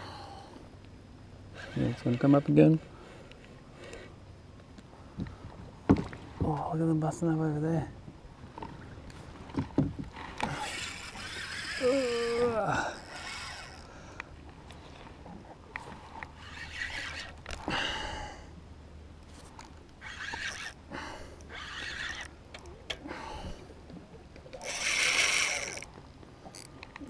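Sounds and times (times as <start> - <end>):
fishing reel drag rasping: 1.5 - 3.2, 10.2 - 14.2, 15.9 - 18.2, 19.4 - 22.6, 24.5 - 26.7.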